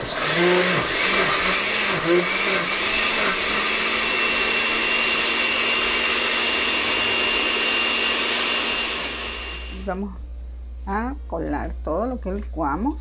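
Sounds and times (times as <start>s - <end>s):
blender running: 0.0s - 10.0s.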